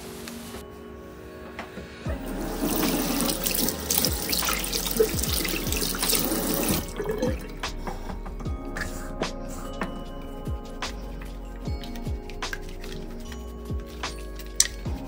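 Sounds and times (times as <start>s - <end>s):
water running into basin: 2.2s - 7.7s
water splashing over hands: 2.3s - 7.7s.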